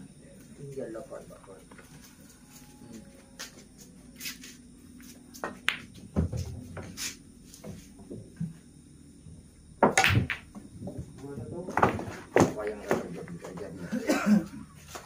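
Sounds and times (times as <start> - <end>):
billiard balls clicking: 5.3 - 6.5, 9.8 - 11.1.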